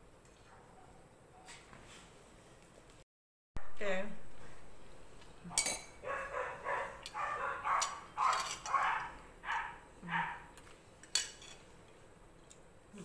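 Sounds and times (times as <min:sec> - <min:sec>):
dog barking: 0:00.4 - 0:01.6, 0:05.5 - 0:10.5.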